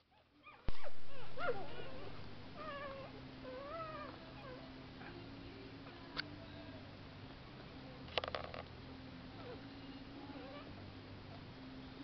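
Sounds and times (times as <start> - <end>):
faint low hum: 0.0 - 12.0
puppies squeaking and whining: 0.1 - 5.2.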